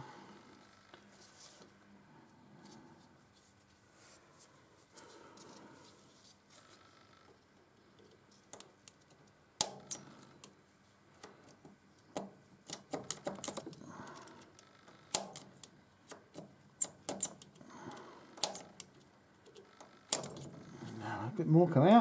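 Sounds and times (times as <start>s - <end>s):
centre punch metallic clicks: 12.1s - 20.5s.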